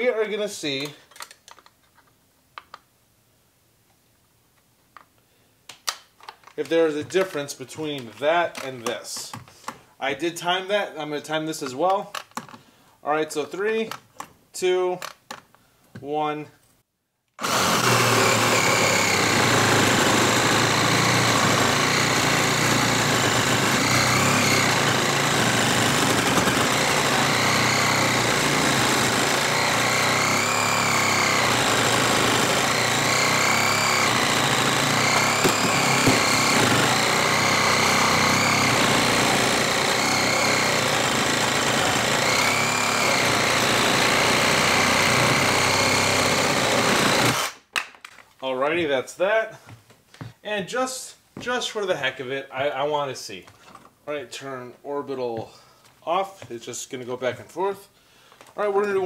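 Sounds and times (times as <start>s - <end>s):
reciprocating saw cutting wood: 17.4s - 47.6s.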